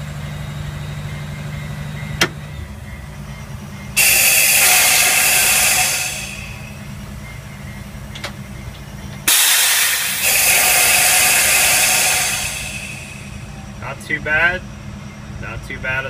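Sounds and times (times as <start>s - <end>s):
diesel engine humming: 0.0s - 16.0s
loud air hiss: 4.0s - 7.1s, 9.3s - 13.8s.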